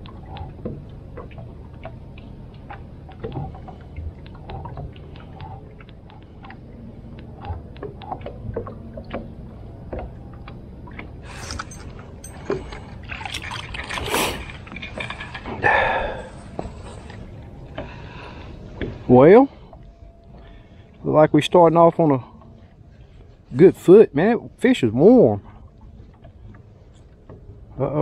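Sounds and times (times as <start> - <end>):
clicks and knocks on boat: 0.0 - 19.1
low steady hum: 0.0 - 28.0.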